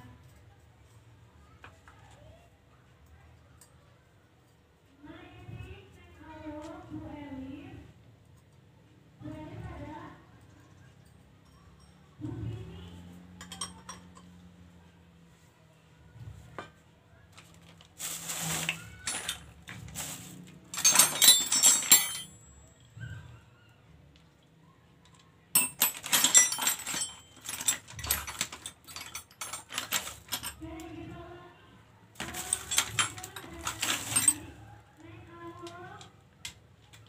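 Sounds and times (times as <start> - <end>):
rapid metallic clicking of tools: 25.6 - 30.6.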